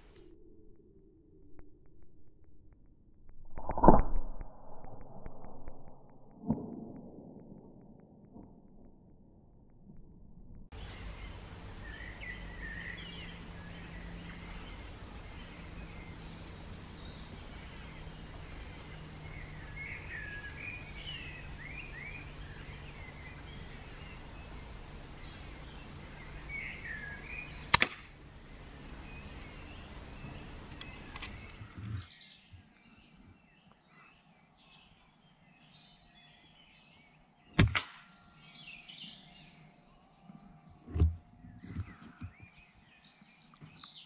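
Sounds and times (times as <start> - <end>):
low steady hum: 0.0 - 32.1
small birds chirping: 10.7 - 44.0
air rifle firing: 27.7 - 28.2, 37.6 - 38.0
faint click: 30.7 - 31.9.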